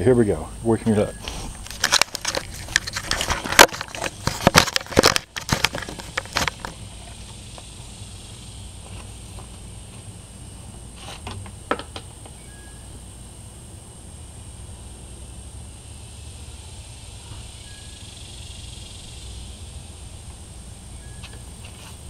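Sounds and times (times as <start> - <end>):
camera handling knocks and rustles: 1.6 - 6.8
faint steady high tone: 12.3 - 13.1, 16.4 - 18.2.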